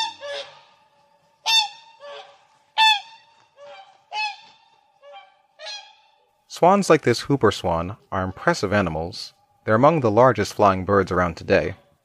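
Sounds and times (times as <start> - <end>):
swans calling: 0.0 - 6.8, 7.4 - 9.8.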